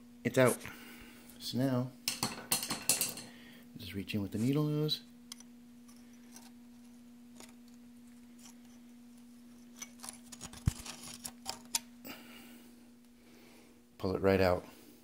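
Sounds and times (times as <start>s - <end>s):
faint steady hum: 0.0s - 15.0s
pliers clicking and scraping metal: 9.6s - 11.9s.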